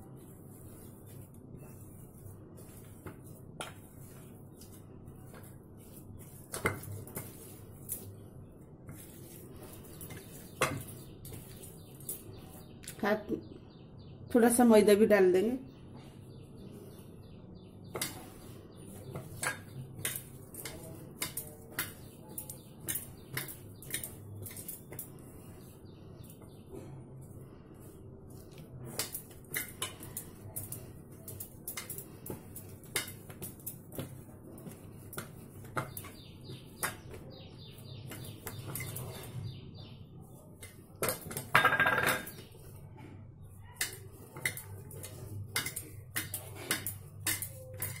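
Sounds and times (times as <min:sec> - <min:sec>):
metal bowl clinks and knocks: 0:41.2 - 0:42.4.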